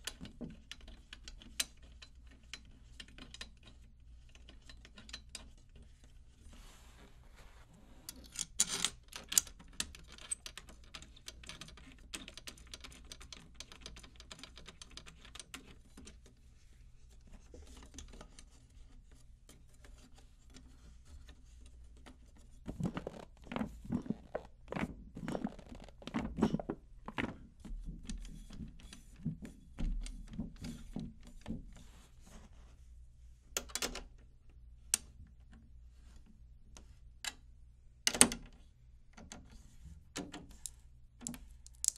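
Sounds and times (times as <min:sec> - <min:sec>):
thumps and rubbing on drumhead: 0:16.6 - 0:32.9.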